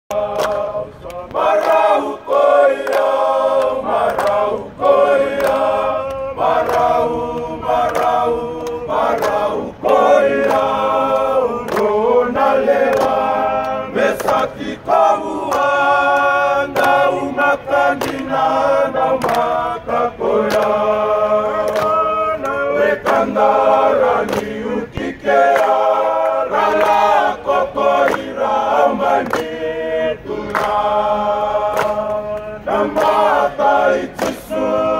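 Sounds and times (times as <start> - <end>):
men singing in harmony: 0.1 - 34.9.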